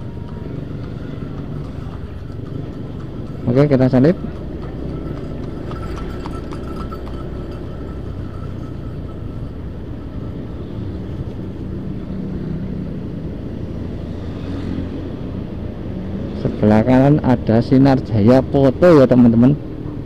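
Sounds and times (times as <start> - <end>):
horse hooves clopping: 0.0 - 12.1
motorcycle engine drone: 0.0 - 17.4
road and wind noise: 0.0 - 20.0.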